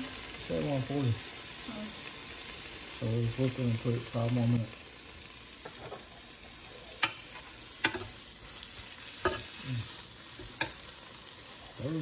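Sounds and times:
chicken sizzling on a grill: 0.0 - 12.0
tongs clacking against grill: 7.0 - 8.2, 9.2 - 9.6, 10.4 - 10.9.

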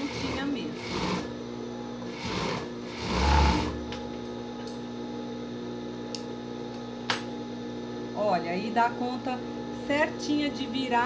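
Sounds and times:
overlock machine stitching: 0.0 - 1.3, 2.1 - 3.8
motor hum: 0.0 - 11.0.

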